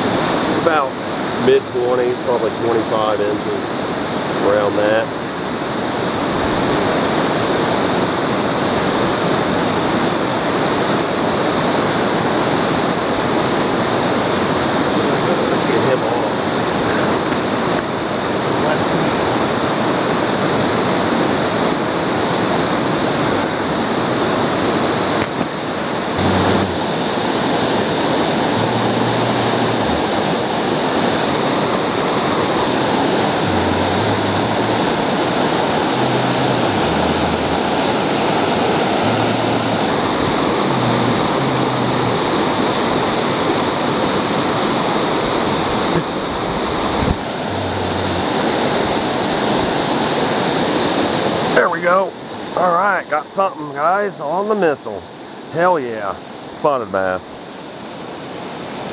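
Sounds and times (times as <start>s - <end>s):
river water rushing: 0.0s - 58.9s
bump: 26.2s - 27.2s.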